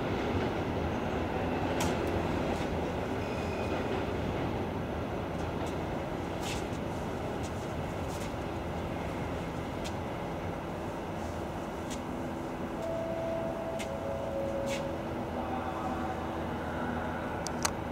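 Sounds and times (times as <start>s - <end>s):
train rumbling: 0.0s - 17.9s
brief high tone: 12.8s - 17.5s.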